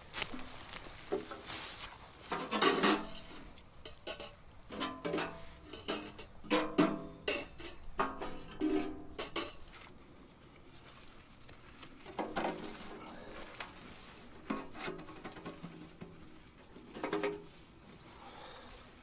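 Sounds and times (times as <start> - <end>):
metal clanks and knocks: 2.3 - 9.6.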